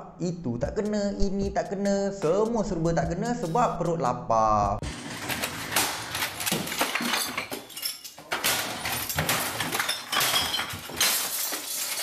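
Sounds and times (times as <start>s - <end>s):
bottles clinking: 4.9s - 12.0s
objects banging on a desk: 5.0s - 12.0s.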